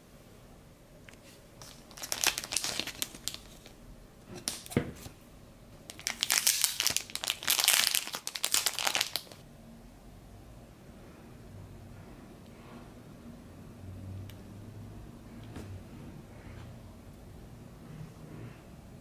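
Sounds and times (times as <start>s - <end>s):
plastic packaging crinkling: 1.6s - 3.8s, 5.9s - 9.4s.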